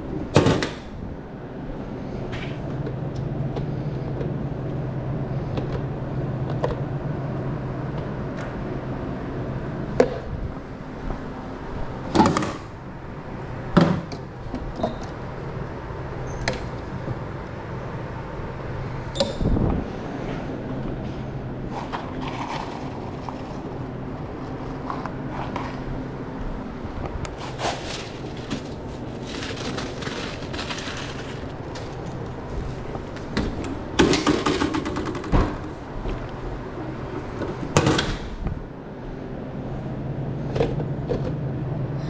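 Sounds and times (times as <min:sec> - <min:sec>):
steady low hum: 0:00.0 - 0:42.0.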